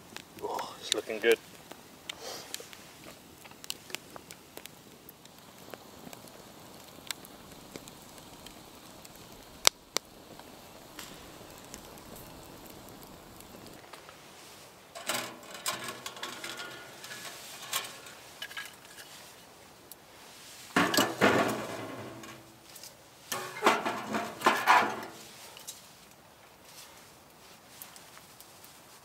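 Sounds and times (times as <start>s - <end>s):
metal stove clattering: 15.0s - 19.1s, 20.8s - 22.6s, 23.3s - 25.4s.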